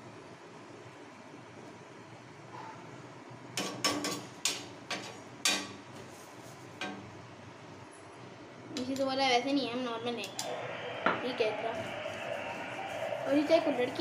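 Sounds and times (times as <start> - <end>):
metal utensils clinking on pans: 3.6 - 5.8.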